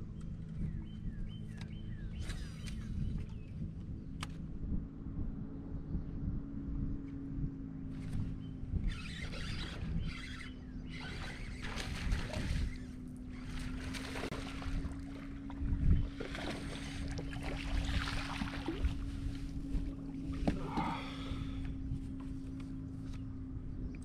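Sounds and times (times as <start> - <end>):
wind on microphone: 0.0 - 22.3
electric trolling motor humming: 0.0 - 24.0
water splashing: 10.9 - 19.1.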